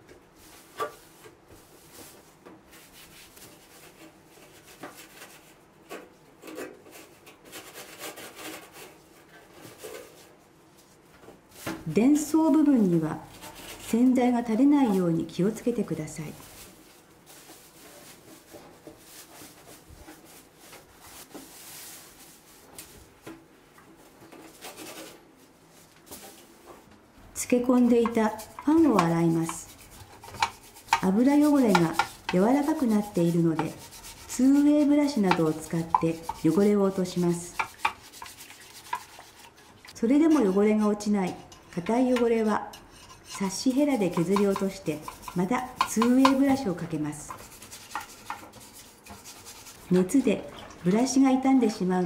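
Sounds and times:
sponge scrubbing stainless steel: 6.4s - 9.0s, 27.4s - 51.9s
cloth wiping metal surface: 28.2s - 39.6s.

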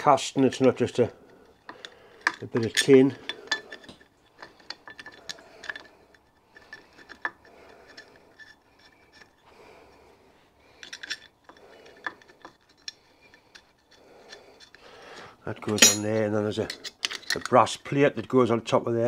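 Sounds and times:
light metallic clinks and taps: 0.6s - 9.4s, 15.6s - 17.6s.

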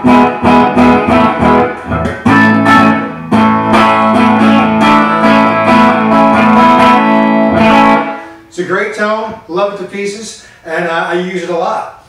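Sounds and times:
electric guitar strumming chords: 0.0s - 8.5s.

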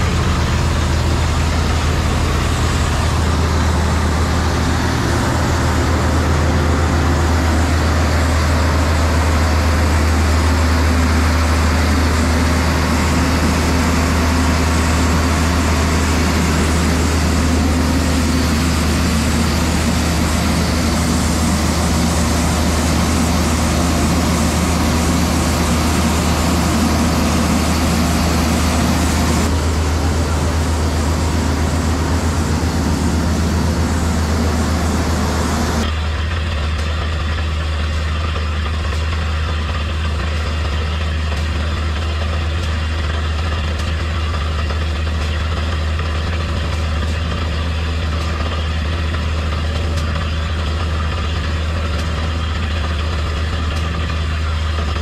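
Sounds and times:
loud hiss: 0.0s - 35.9s
heavy engine drone: 0.0s - 55.0s.

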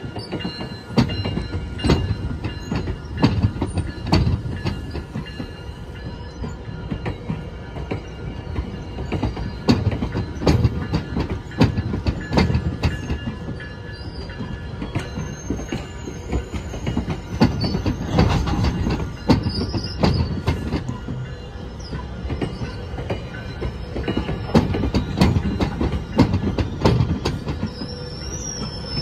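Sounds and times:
low rumble of train: 0.0s - 29.0s
train wheels clicking over rail joints: 0.0s - 29.0s
high wheel squeal: 11.6s - 29.0s.

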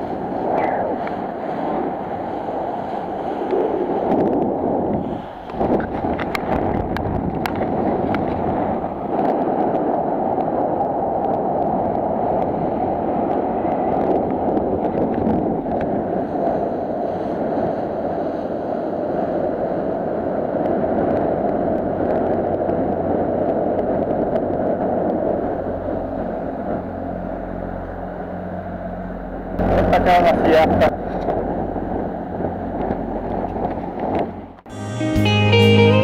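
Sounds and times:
water rushing along hull: 0.0s - 34.7s
faint low engine hum: 24.2s - 34.6s.

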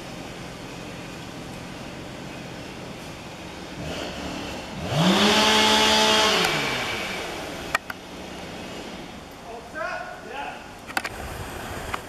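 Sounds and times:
chainsaw revving: 3.8s - 7.7s.

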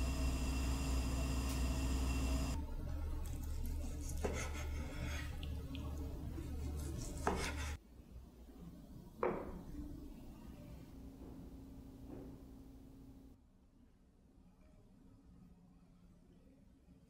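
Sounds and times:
knife slicing through meat: 6.4s - 7.8s.

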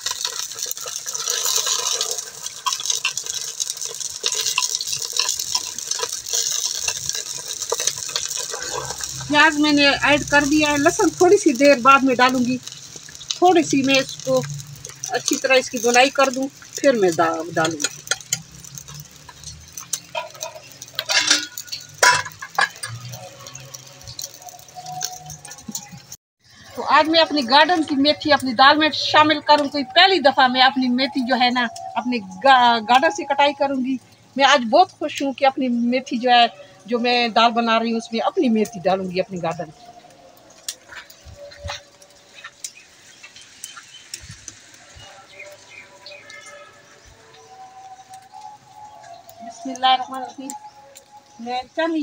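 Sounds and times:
onion sizzling in oil: 0.0s - 52.0s
metal spoon scraping clay pot: 0.1s - 26.2s.

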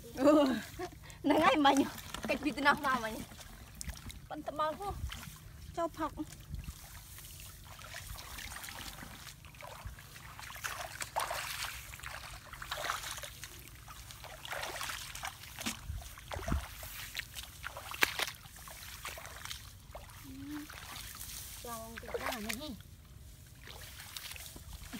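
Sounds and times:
feet splashing in muddy water: 0.0s - 24.9s
grass stalks swishing: 20.7s - 22.6s.

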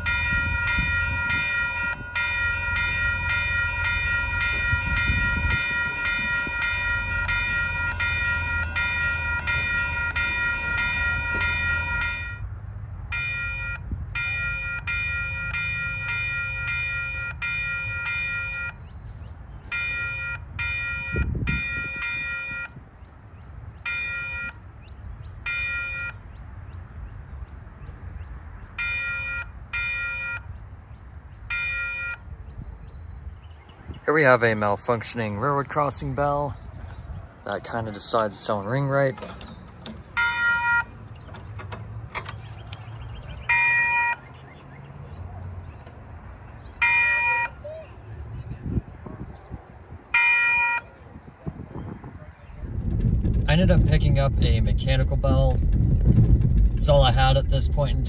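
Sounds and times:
railroad crossing bell dinging: 0.0s - 22.8s, 23.8s - 24.8s, 25.4s - 26.3s, 28.8s - 30.5s, 31.5s - 32.3s, 37.8s - 45.0s, 45.8s - 47.8s, 50.1s - 51.0s
low rumble: 52.6s - 58.0s.

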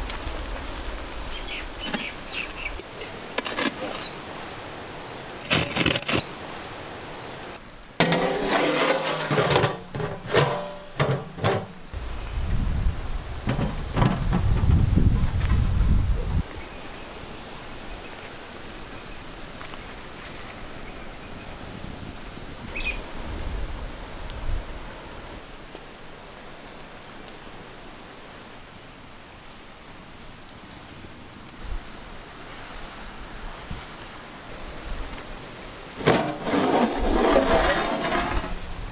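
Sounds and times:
wood fire hissing and crackling: 0.0s - 9.1s, 11.9s - 38.9s
metal lid clanking on pot: 8.0s - 11.7s
wind rumble on microphone: 11.9s - 16.7s, 21.1s - 25.4s, 36.9s - 38.9s.

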